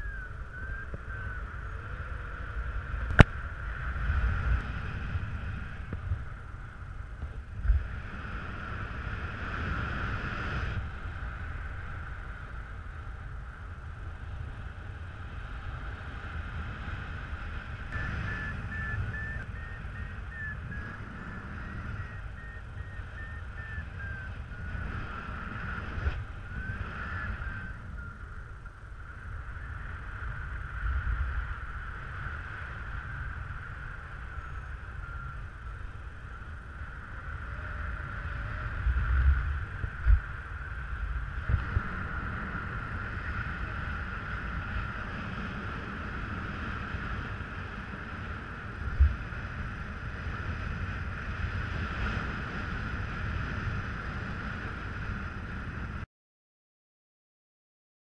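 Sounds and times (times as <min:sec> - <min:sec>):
high whistle-like tone: 0:00.0 - 0:01.4, 0:18.0 - 0:24.7
wind rushing over microphone: 0:00.0 - 0:56.1.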